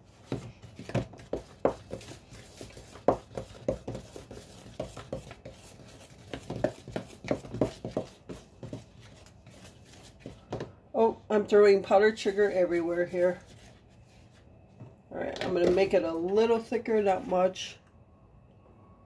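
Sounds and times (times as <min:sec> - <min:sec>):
utensil stirring icing in plastic jug: 0:00.1 - 0:10.7.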